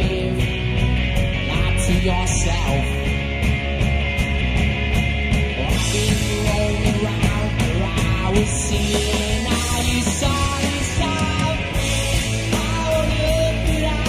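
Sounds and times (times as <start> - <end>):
man singing lead vocal: 0.0 - 0.6, 1.4 - 3.1, 5.7 - 14.0
electric guitar: 0.0 - 14.0
live rock band playing: 0.0 - 14.0.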